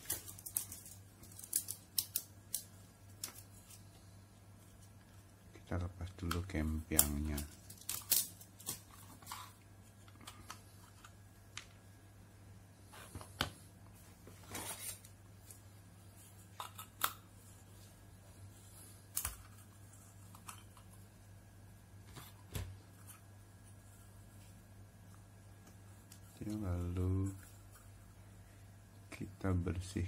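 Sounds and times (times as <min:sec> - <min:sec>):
low steady hum: 0:00.0 - 0:30.0.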